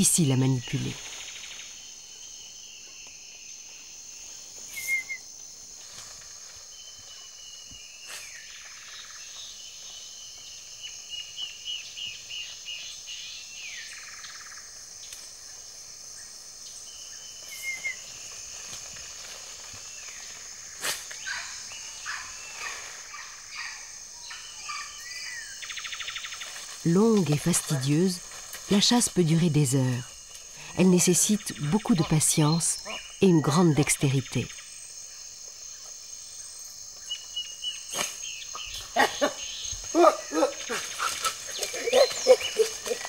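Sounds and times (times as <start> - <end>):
birds calling: 20.1 - 34.7, 37.0 - 43.0.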